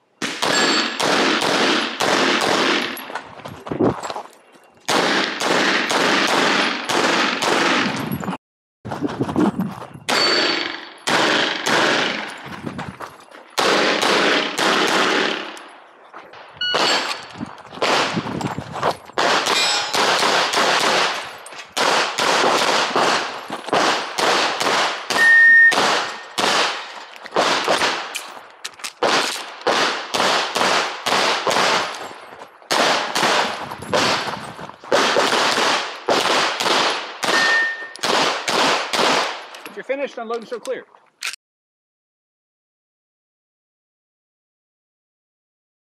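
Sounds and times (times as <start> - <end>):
pistol shots in rapid strings: 10.1 - 12.3, 13.6 - 15.5, 19.2 - 21.2, 21.8 - 26.8, 34.9 - 37.4.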